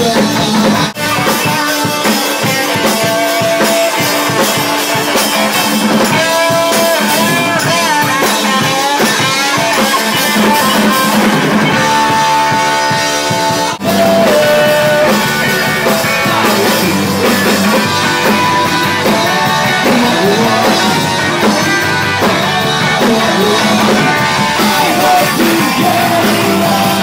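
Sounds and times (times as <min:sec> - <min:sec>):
live rock band with electric guitars: 0:00.0 - 0:27.0.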